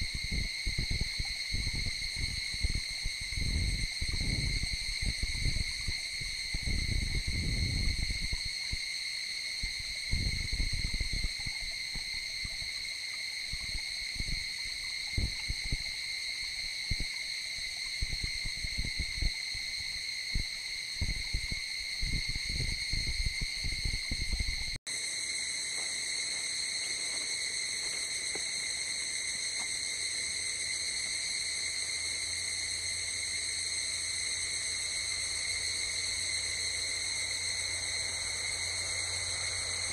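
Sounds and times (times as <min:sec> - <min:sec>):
wind thumping on microphone: 0:00.0 - 0:08.9, 0:09.6 - 0:12.6, 0:13.5 - 0:16.0, 0:16.6 - 0:24.8
night insects chorus: 0:00.0 - 0:39.9.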